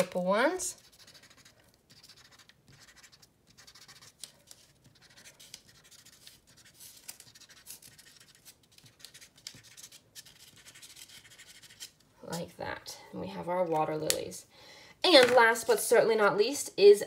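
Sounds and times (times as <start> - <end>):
marker scratching on paper: 0.0 - 12.0.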